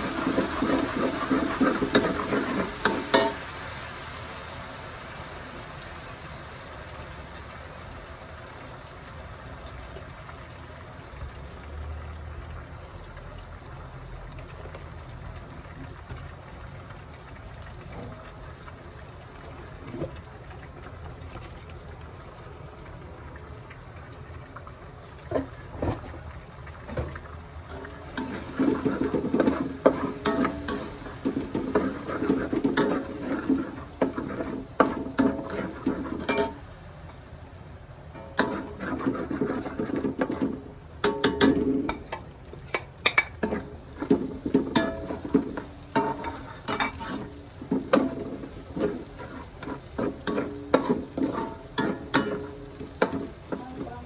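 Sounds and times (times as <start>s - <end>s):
metal spatula scraping wok: 0.0s - 3.6s, 27.7s - 36.7s, 38.2s - 42.0s, 43.3s - 54.0s
garlic sizzling in oil: 0.0s - 54.0s.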